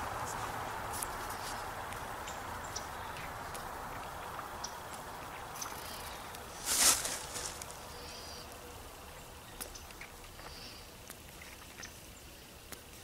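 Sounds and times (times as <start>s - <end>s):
faint bird chirps: 7.8s - 12.5s.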